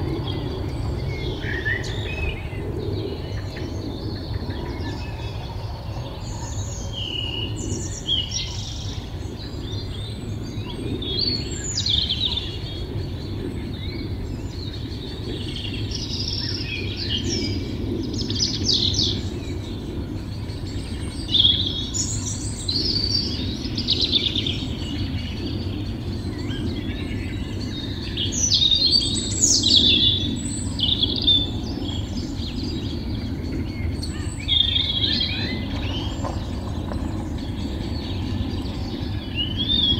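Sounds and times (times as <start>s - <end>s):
low background rumble: 0.0s - 39.9s
songbirds chirping and singing: 0.0s - 39.9s.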